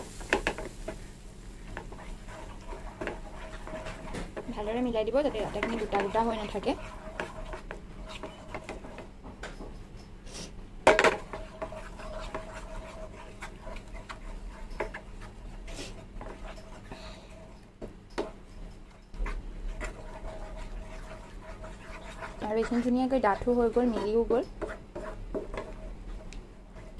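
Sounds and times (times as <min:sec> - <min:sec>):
spatula scraping a pan: 0:00.0 - 0:09.1, 0:10.4 - 0:26.9
faint steady hum: 0:00.0 - 0:26.9
knock against pan: 0:10.9 - 0:11.2.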